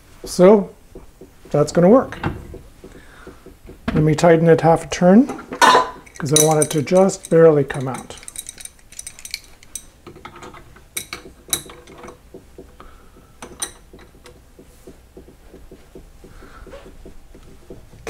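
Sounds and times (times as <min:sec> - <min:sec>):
wrenches clicking on a nut: 0:06.0 - 0:12.2
ringing metal clinks: 0:06.1 - 0:10.0.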